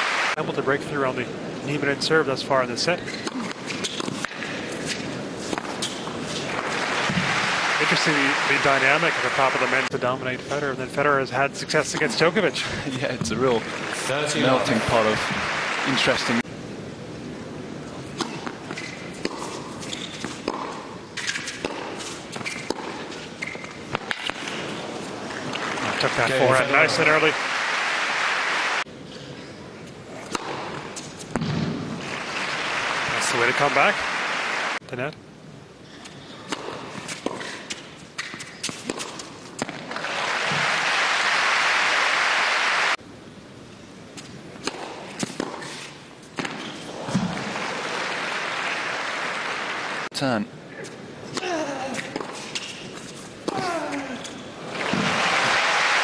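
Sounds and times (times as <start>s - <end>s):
crowd applause: 0.0s - 0.4s, 6.6s - 10.0s, 13.4s - 16.4s, 25.6s - 28.8s, 32.0s - 34.8s, 39.9s - 43.0s, 47.3s - 50.1s, 54.7s - 56.0s
shoe squeaks: 3.0s - 4.1s, 19.8s - 20.4s, 21.2s - 23.7s, 38.2s - 39.2s
tennis ball struck by rackets: 18.2s - 24.5s, 30.3s - 31.9s, 36.5s - 40.0s, 44.6s - 45.8s, 46.4s - 47.5s.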